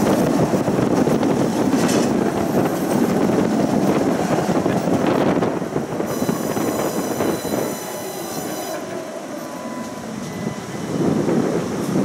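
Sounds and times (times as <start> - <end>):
tram rumbling on rails: 0.0 - 12.0
metallic wheel squeal: 6.1 - 10.8.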